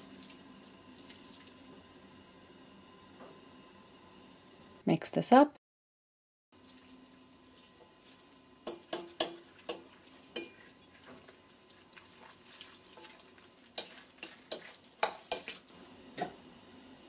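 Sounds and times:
spoon mixing meat in bowl: 7.5 - 15.7
spoon clinking against glass: 10.4 - 10.7.

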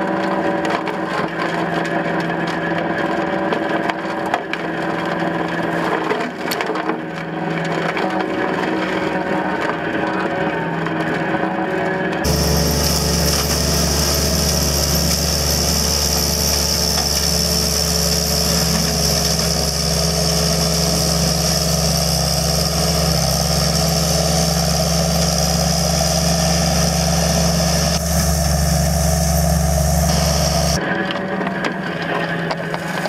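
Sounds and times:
diesel engine running: 0.0 - 33.0
mower head high whine: 10.6 - 33.0.

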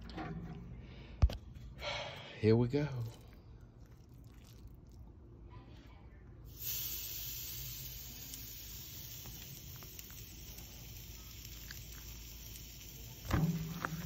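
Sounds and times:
hiss: 6.5 - 14.0.

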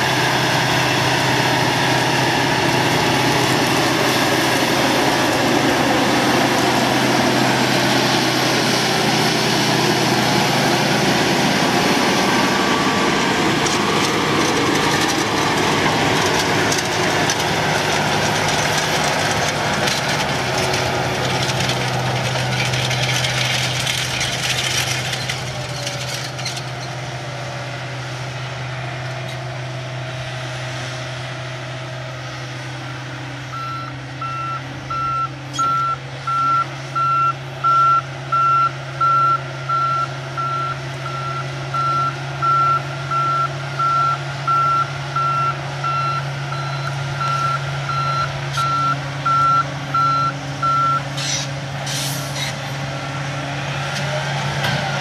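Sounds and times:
tractor diesel engine drone: 0.0 - 55.0
broad hiss of field work: 51.1 - 52.8.

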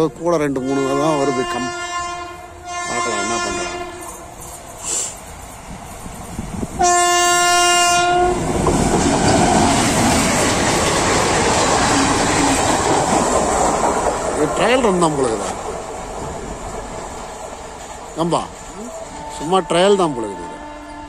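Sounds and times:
train passing with rail clatter: 0.0 - 21.0
locomotive horn blast: 0.6 - 4.4, 6.8 - 8.4, 18.9 - 21.0.

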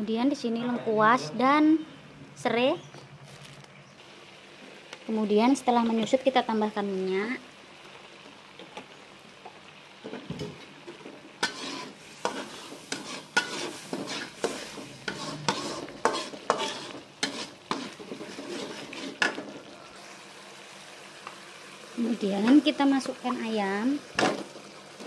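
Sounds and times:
spice paste frying in oil: 2.8 - 25.0
metal spatula scraping a wok: 11.4 - 19.7.

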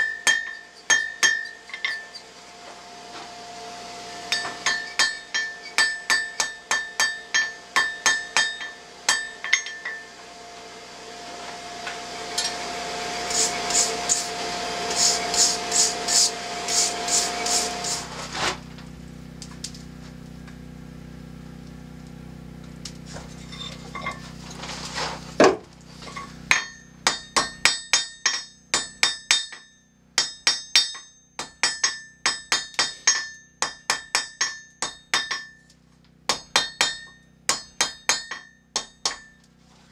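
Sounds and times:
hammer striking steel on anvil: 0.0 - 2.3, 4.3 - 10.2, 12.4 - 12.6, 13.3 - 18.1, 26.1 - 39.5
steady low hum: 0.0 - 39.9.

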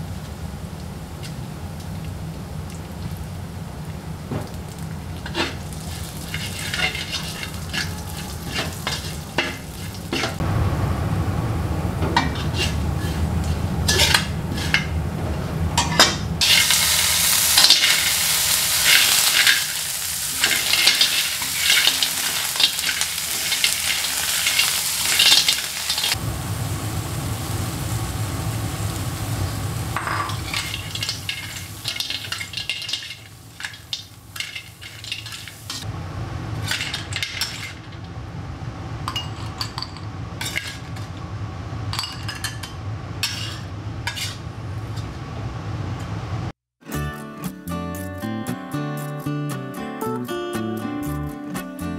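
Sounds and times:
food sizzling in hot oil: 4.4 - 11.1, 16.4 - 37.9
metal spatula scraping a wok: 5.2 - 10.4, 12.2 - 15.0, 15.8 - 26.2, 30.0 - 35.9, 36.6 - 38.0, 40.4 - 41.1, 43.2 - 45.1.

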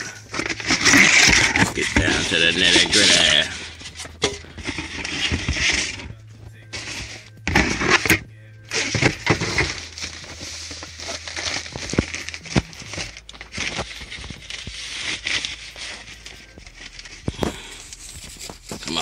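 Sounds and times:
plastic bag crinkling: 0.0 - 19.0.

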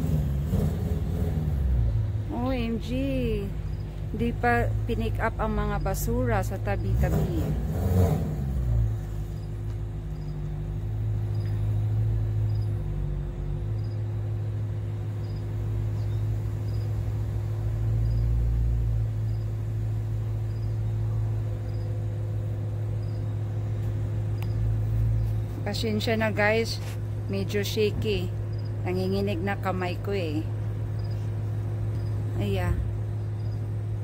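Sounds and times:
car engine idling: 0.0 - 34.0
faint high chirp: 15.2 - 16.9, 20.4 - 22.1, 23.0 - 23.4.

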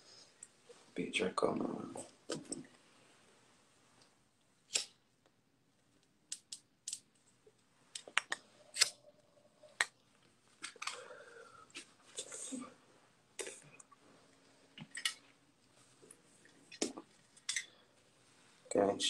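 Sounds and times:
breathy rush of blowing: 10.9 - 12.8.

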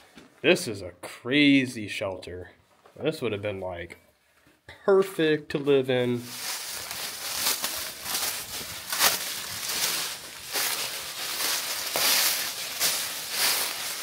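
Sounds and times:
footsteps crunching on dry leaves: 6.1 - 14.0.

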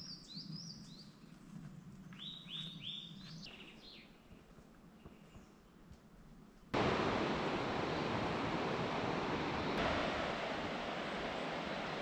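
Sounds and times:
running water rushing: 6.8 - 12.0.

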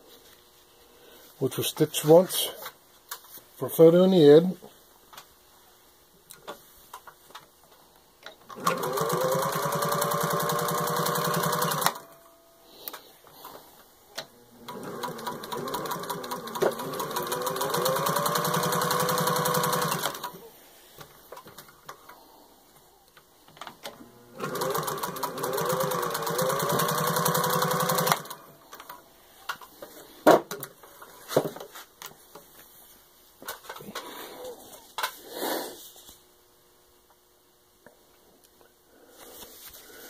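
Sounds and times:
sewing machine motor whine: 8.5 - 12.1, 14.3 - 20.4, 23.9 - 28.8.

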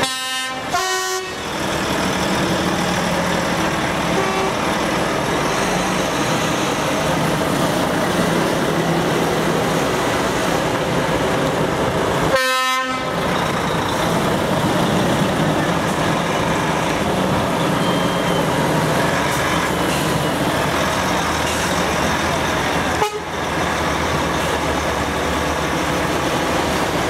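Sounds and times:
truck horn blasts: 0.0 - 1.4, 4.1 - 4.6, 12.3 - 13.2, 23.0 - 23.4
truck engines passing: 0.0 - 27.0.

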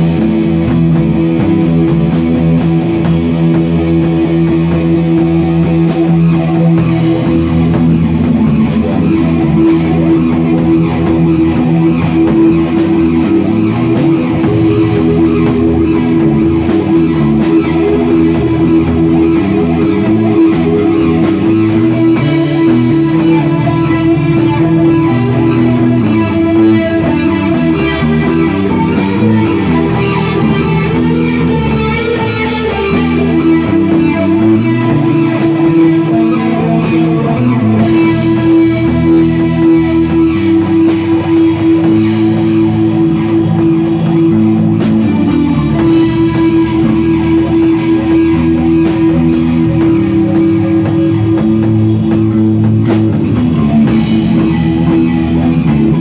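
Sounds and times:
drums and cymbals: 0.0 - 56.0
electric bass: 0.0 - 56.0
sustained electric guitar: 0.0 - 56.0.

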